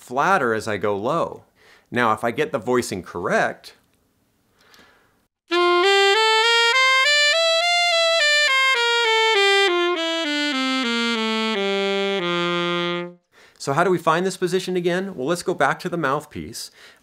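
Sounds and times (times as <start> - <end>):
alto saxophone playing a scale: 5.5 - 13.3.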